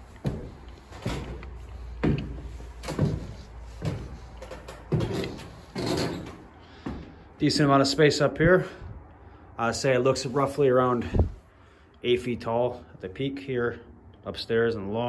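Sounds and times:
footsteps on wooden stairs: 0.0s - 7.4s.

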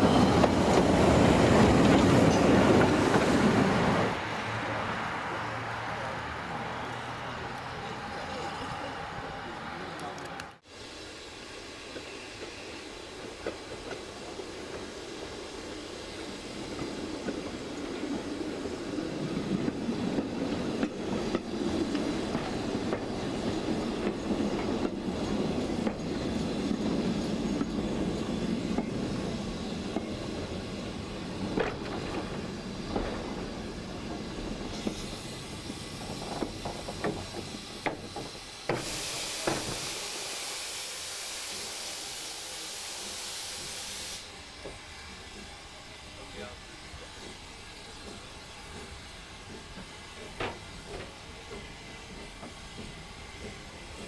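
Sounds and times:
train wheels rumbling on track: 0.0s - 54.0s
steam hissing: 10.6s - 54.0s.

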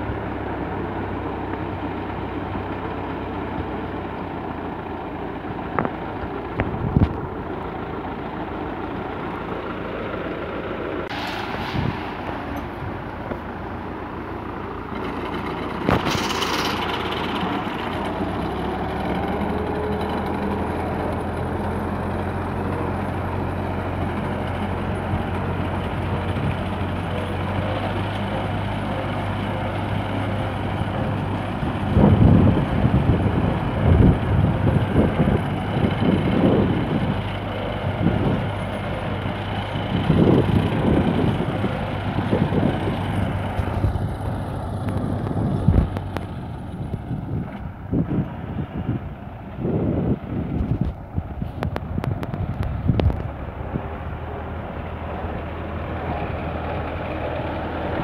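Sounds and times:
mower cutting grass: 0.0s - 48.9s, 52.1s - 58.0s
tractor diesel engine running: 0.0s - 58.0s
wind buffeting microphone: 5.6s - 7.6s, 11.1s - 13.8s, 30.5s - 56.3s.

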